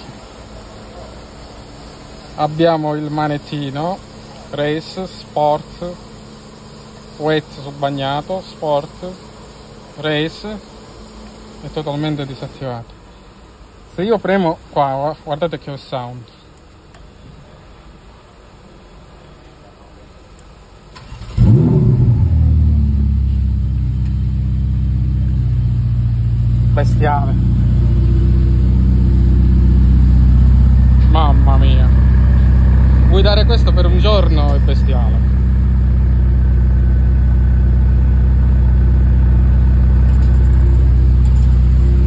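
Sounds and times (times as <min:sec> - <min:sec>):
car engine starting and idling: 0:20.8 - 0:42.0.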